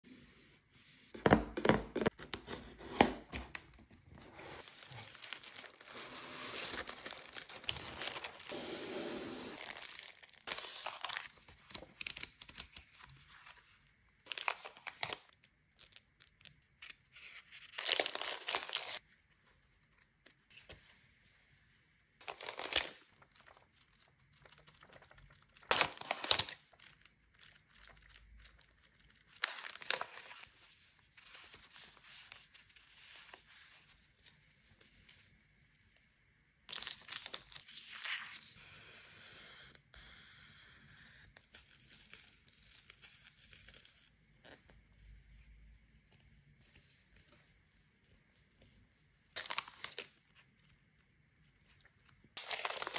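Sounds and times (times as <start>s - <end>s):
plastic sleeves crinkling: 3.3s - 8.7s, 9.5s - 12.8s, 14.2s - 19.0s, 22.2s - 32.7s, 51.4s - 52.9s.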